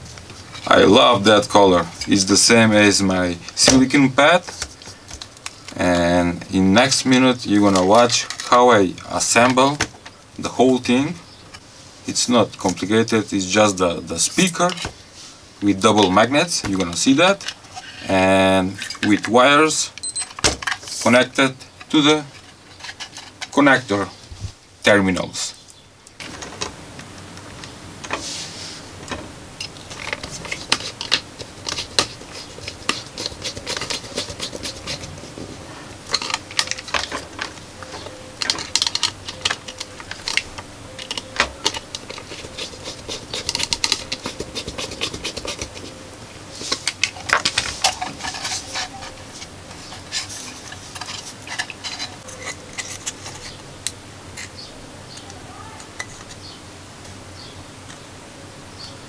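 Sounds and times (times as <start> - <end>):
speaker being handled: 26.2 - 53.6.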